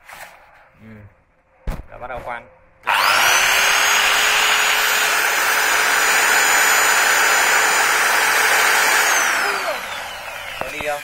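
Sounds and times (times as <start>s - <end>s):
power drill boring into wood: 2.8s - 11.0s.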